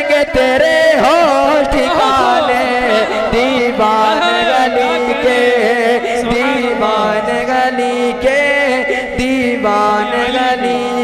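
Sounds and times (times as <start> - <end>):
man singing devotional song: 0.0 - 11.0.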